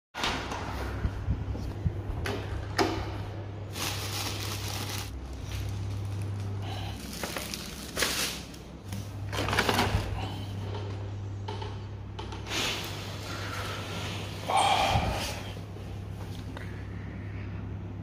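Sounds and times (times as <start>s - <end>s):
steady low hum: 0.3s - 18.0s
bags rustling and crinkling: 3.7s - 10.0s.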